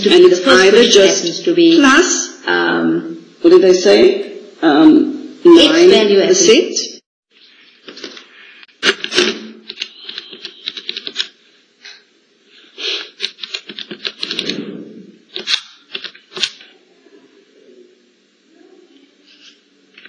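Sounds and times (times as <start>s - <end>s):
calculator keys clicking: 9.6s - 11.3s, 13.2s - 14.6s, 15.4s - 16.5s.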